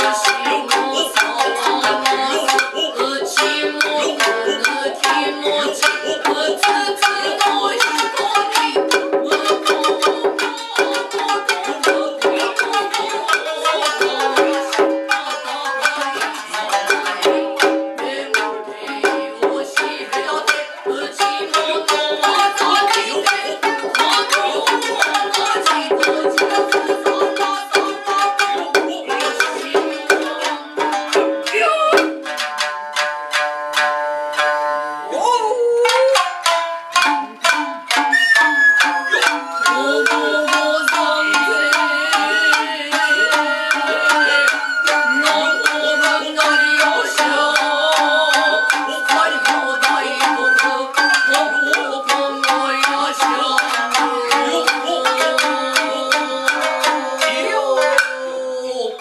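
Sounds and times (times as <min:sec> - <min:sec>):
bamboo flute: 0:00.0 - 0:59.0
hand drums: 0:00.0 - 0:59.0
plucked shamisen: 0:00.0 - 0:59.0
voices singing: 0:00.0 - 0:59.0
taiko drum strokes: 0:06.0 - 0:34.4.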